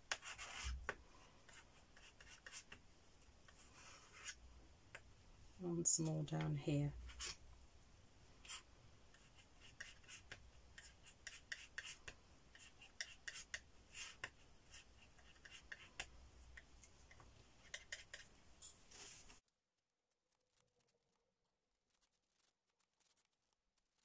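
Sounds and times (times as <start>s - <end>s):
palette knife scraping paint: 0.1s - 2.8s, 3.4s - 4.4s, 7.0s - 7.4s, 8.4s - 16.7s, 17.6s - 18.3s.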